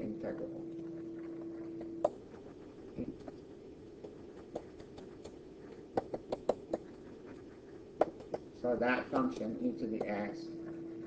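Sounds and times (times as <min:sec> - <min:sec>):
low background hiss: 0:00.0 - 0:11.0
stylus tapping on tablet screen: 0:01.2 - 0:02.3, 0:04.0 - 0:08.5, 0:09.1 - 0:10.2.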